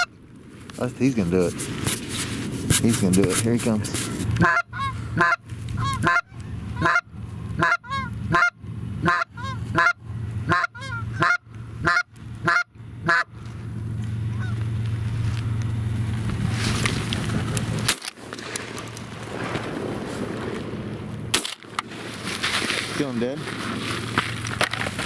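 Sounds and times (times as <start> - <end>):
wind rumble: 0.0 - 25.0
goose call honks and clucks: 3.2 - 13.5, 14.2 - 14.8.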